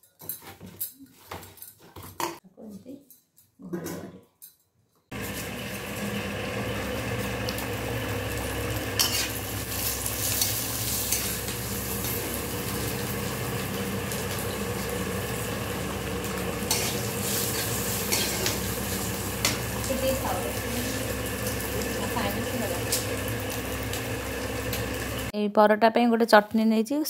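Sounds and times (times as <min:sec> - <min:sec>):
food sizzling in hot oil: 0:05.1 - 0:25.3
ladle scraping a pan: 0:16.7 - 0:19.6.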